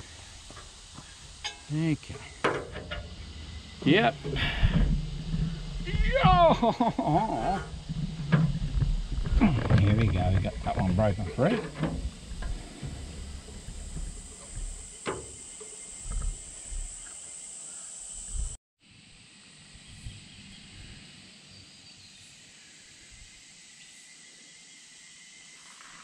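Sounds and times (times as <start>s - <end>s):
insects droning: 0.0s - 26.0s
dull knocks: 4.2s - 17.0s.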